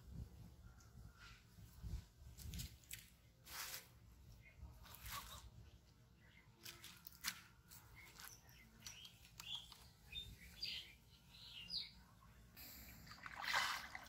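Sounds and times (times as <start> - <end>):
small birds chirping: 4.2 - 13.2
fish splashing on water: 13.0 - 14.0.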